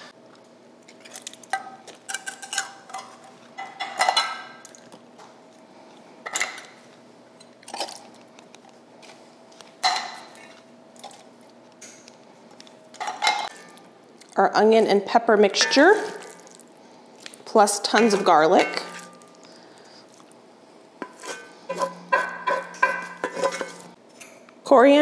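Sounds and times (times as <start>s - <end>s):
tin cans clinking: 15.6s - 16.4s, 17.8s - 19.5s, 21.0s - 24.0s.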